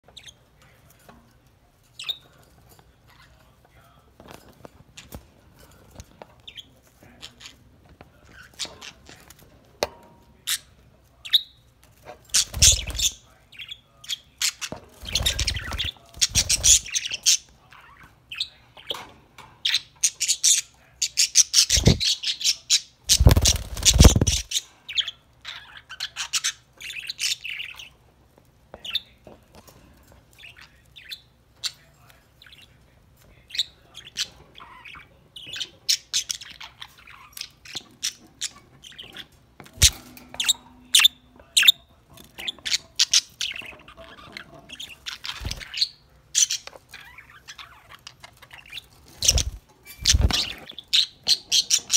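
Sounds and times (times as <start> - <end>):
budgerigars chirping: 12.4 - 19.0, 19.6 - 27.9, 33.5 - 51.9.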